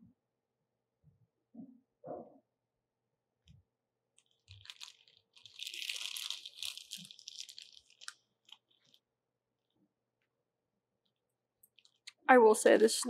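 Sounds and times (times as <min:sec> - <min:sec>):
plastic bag crinkling: 0:04.2 - 0:09.1, 0:11.7 - 0:12.2.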